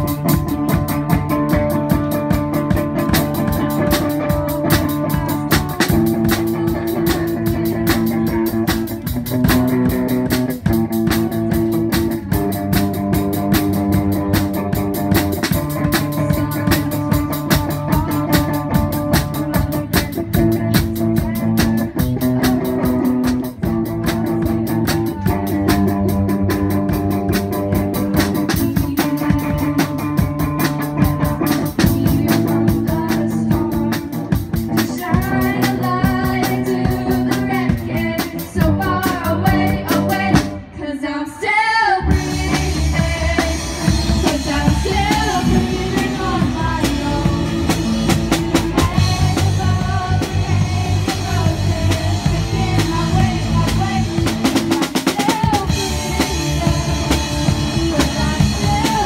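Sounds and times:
drum kit playing: 0.0 - 40.7, 42.0 - 59.0
electric guitars through amplifiers: 42.0 - 59.0.

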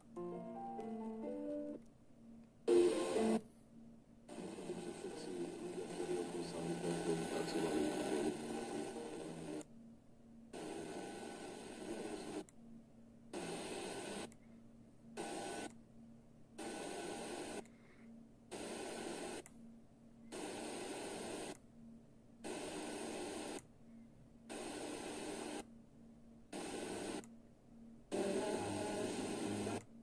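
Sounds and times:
faint low hum: 0.0 - 30.0
radio static hissing: 2.7 - 3.4, 4.3 - 9.7, 10.6 - 12.5, 13.4 - 14.3, 15.2 - 15.7, 16.6 - 17.6, 18.5 - 19.4, 20.3 - 21.6, 22.4 - 23.6, 24.5 - 25.6, 26.5 - 27.2, 28.1 - 29.9.

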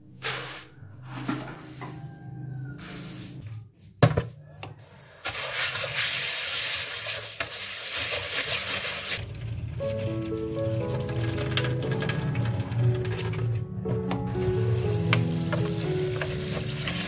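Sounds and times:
tap water running into bowl: 9.2 - 17.0.

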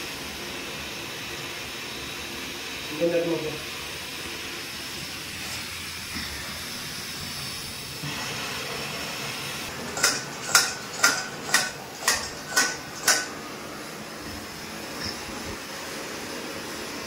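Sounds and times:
kitchenware clinking on a pan: 9.9 - 13.4.

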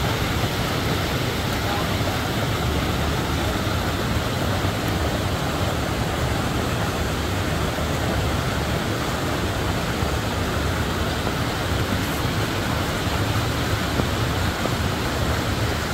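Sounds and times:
water rushing over rocks: 0.0 - 15.9.

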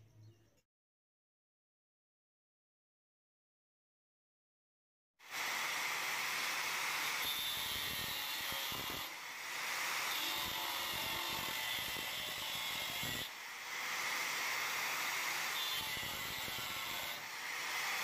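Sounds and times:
angle grinder grinding steel: 5.3 - 18.0.

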